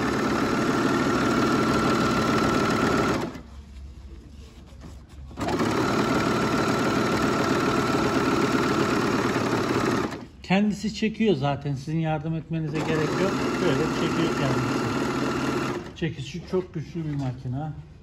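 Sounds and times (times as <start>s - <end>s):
sewing machine running: 0.0s - 3.4s, 5.4s - 10.3s, 12.7s - 16.0s.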